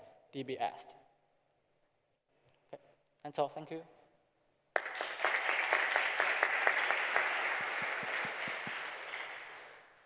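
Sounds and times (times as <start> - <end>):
audience applauding: 4.8 - 10.0.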